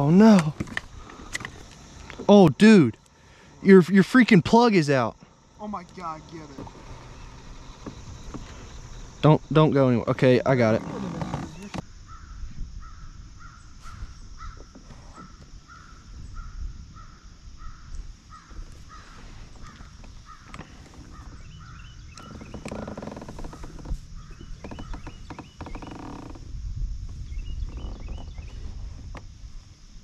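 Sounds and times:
wind rumbling on microphone: 6.0 - 30.0
crow cawing: 12.1 - 14.6, 15.7 - 21.9.

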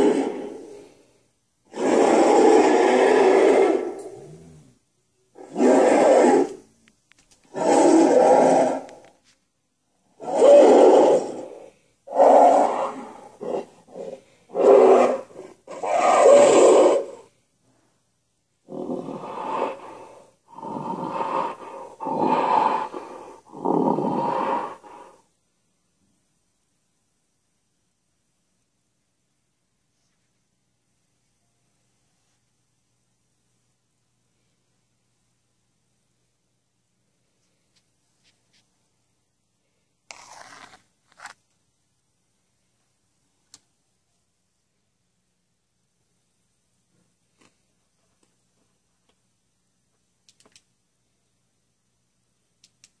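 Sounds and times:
monster roar: 0.0 - 0.8, 1.7 - 4.7, 5.4 - 6.6, 7.5 - 9.0, 10.2 - 17.3.

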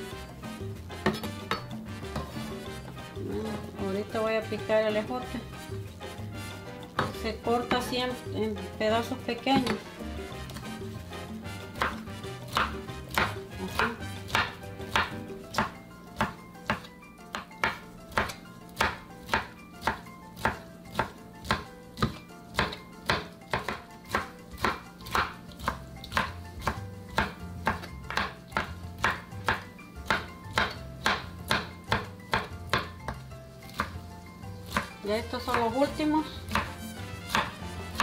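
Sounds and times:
knife chopping on plastic board: 1.0 - 3.1, 6.4 - 7.9, 9.4 - 10.8, 11.5 - 34.0, 34.6 - 38.0.

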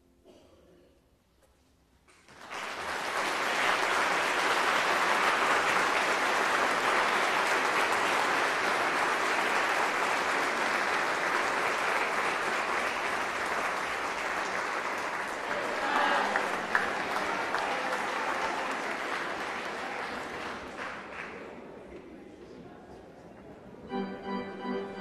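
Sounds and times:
audience applauding: 2.2 - 22.0.

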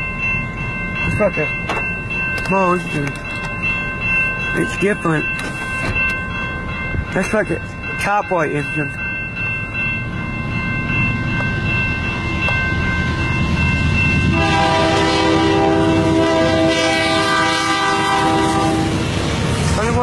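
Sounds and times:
diesel locomotives rumbling: 0.0 - 20.0
train air horn chord: 14.3 - 19.0.

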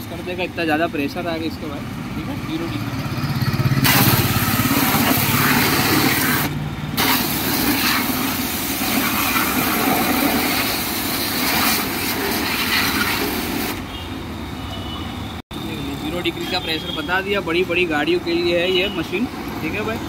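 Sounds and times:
pump running: 3.8 - 13.8
pressure washer spray hissing: 3.8 - 13.9.

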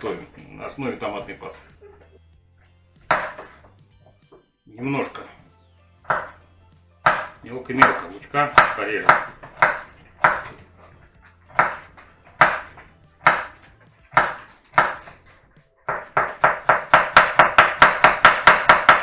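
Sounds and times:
knife chopping on wooden board: 3.0 - 4.4, 6.1 - 6.4, 7.0 - 10.8, 11.4 - 15.3, 15.9 - 19.0.

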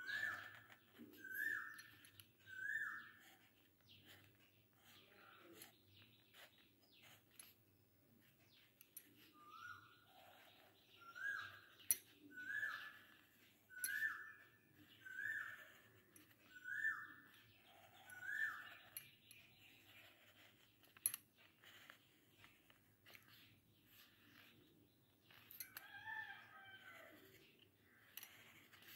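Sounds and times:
bird calling: 1.2 - 1.9, 16.5 - 17.3, 18.0 - 19.0.

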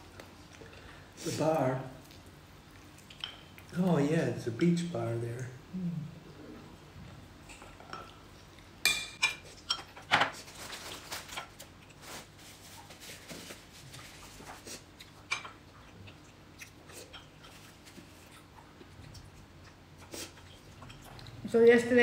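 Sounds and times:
eating and mouth sounds: 1.9 - 3.8, 13.6 - 21.5.

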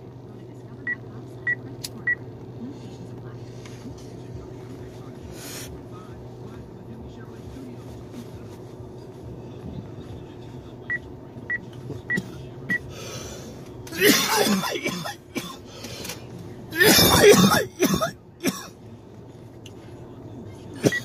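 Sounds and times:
man coughing hard: 13.9 - 15.7, 16.7 - 18.7.

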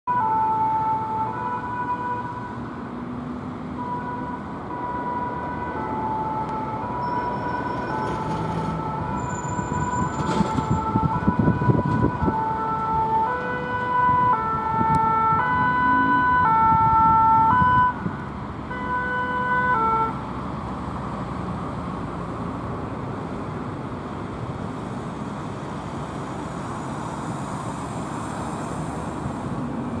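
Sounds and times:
traffic: 0.0 - 30.0
two-tone siren: 0.1 - 2.6, 3.8 - 18.1, 18.7 - 20.2.

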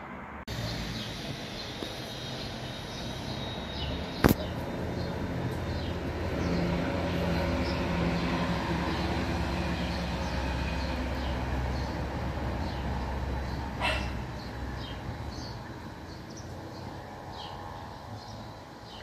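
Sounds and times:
distant traffic rumble: 0.0 - 19.0
sharp click: 4.2 - 4.5.

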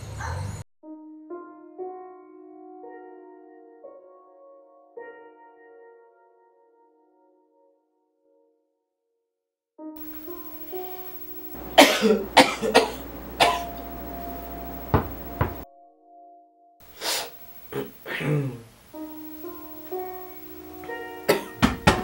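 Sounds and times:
soft instrumental music: 0.8 - 6.7
person coughing: 11.7 - 13.8, 17.1 - 18.6, 21.3 - 21.7.

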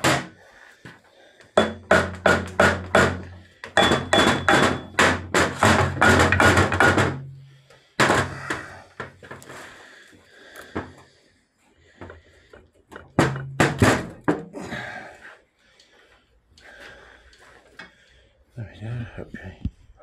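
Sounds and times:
mallet striking metal casing: 1.6 - 7.3.

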